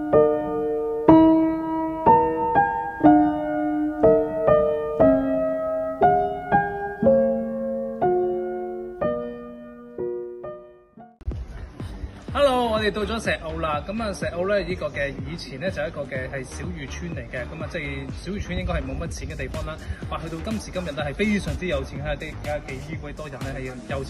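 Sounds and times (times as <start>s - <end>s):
gentle piano chords: 0.0s - 11.8s.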